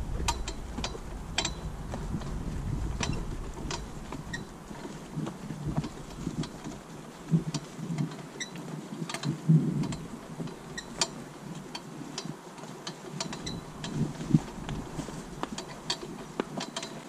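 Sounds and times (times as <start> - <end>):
cart frame and harness rattling: 0.0 - 17.0
hooves and wheels thudding on dirt: 0.0 - 17.0.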